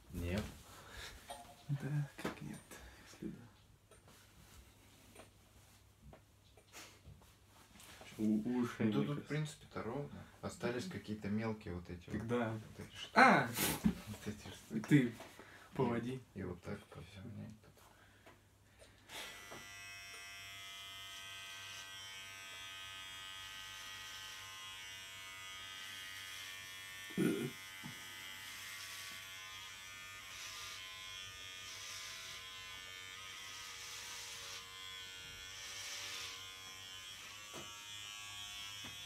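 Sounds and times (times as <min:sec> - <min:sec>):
electric hair clippers buzzing: 0:19.1 - 0:39.0.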